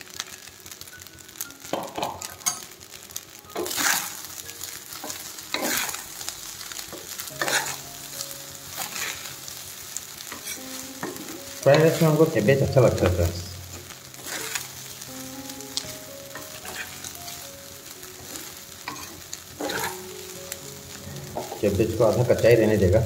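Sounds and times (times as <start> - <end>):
rice and cabbage sizzling in a pan: 0.0 - 23.0
spatula scraping a pan: 3.6 - 4.3, 5.0 - 6.1, 7.0 - 7.8, 8.8 - 9.4, 10.2 - 12.2, 14.1 - 14.8, 15.8 - 17.1, 18.2 - 20.0.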